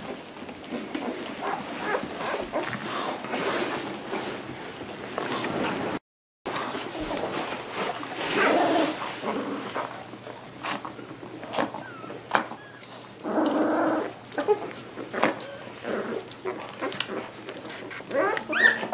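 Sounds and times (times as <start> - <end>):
puppies whimpering and crying: 0.0 - 3.2, 11.5 - 18.9
puppy squeaks: 18.2 - 18.9.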